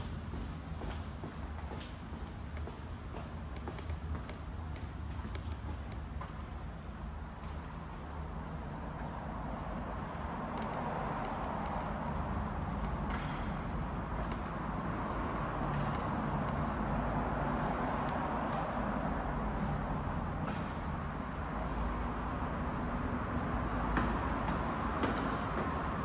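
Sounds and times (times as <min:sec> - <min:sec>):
road traffic passing: 0:00.0 - 0:26.0.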